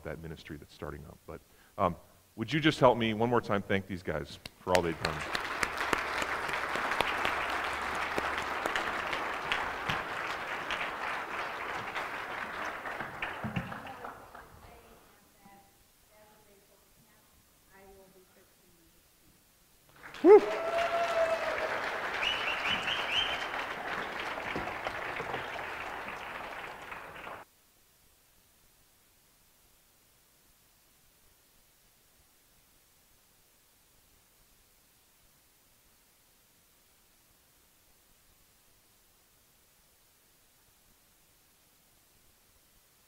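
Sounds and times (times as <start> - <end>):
crowd applauding: 4.7 - 14.6, 19.9 - 27.4.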